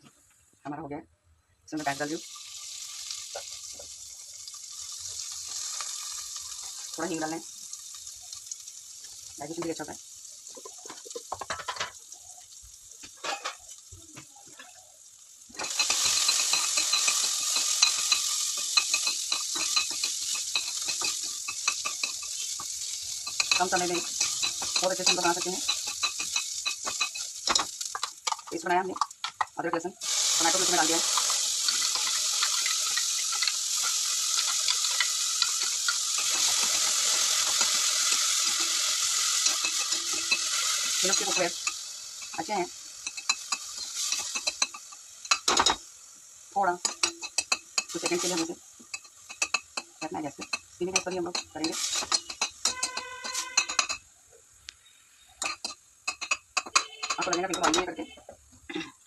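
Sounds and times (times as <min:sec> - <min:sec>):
onions sizzling in oil: 0:01.7 - 0:59.0
small crackles and pops: 0:02.6 - 0:57.2
metal spoon scraping pan: 0:15.6 - 0:29.1, 0:30.0 - 0:42.4, 0:43.0 - 0:45.8, 0:46.8 - 0:54.0, 0:55.4 - 0:58.2.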